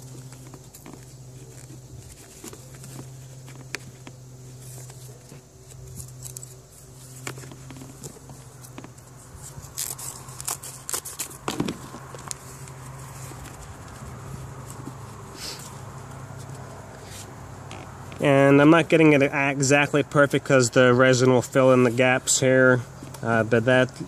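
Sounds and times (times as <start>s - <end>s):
steady low hum: 0.0s - 24.0s
scissors snipping: 4.8s - 14.0s.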